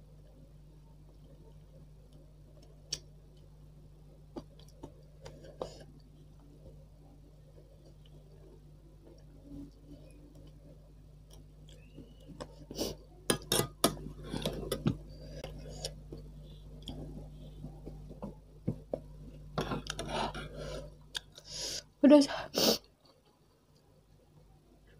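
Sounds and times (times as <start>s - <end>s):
cutlery clinking on metal pot: 13.3s - 14.9s.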